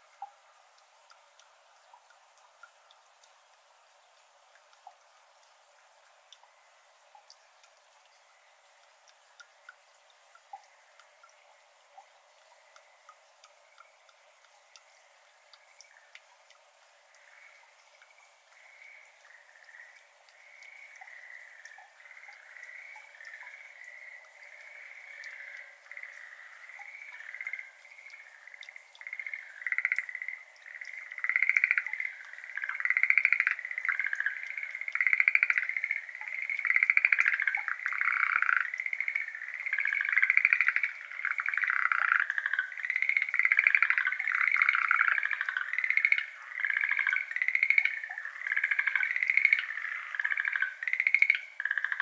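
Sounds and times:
frogs calling in rattling trills: 10.4s - 16.3s, 17.0s - 52.0s.

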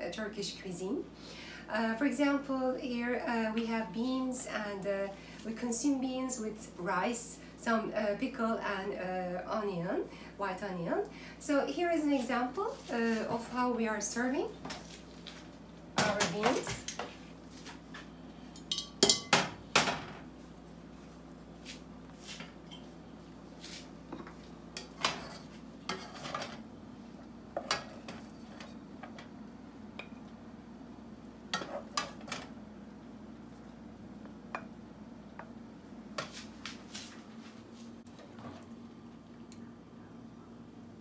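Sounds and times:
spoon scraping saucepan: 24.8s - 26.6s.

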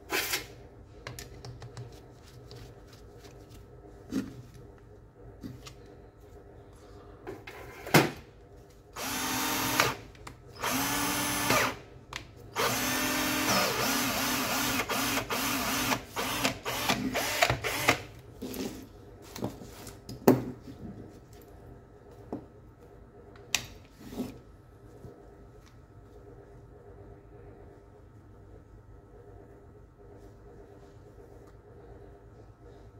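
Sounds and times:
cordless drill motor whining: 9.0s - 10.0s, 10.6s - 11.8s, 12.6s - 18.0s.

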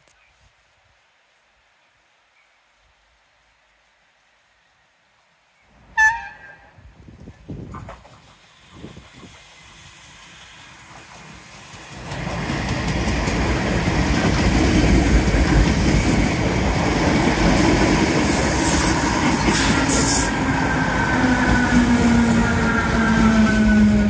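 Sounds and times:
train wheels clattering on rails: 7.7s - 24.0s.

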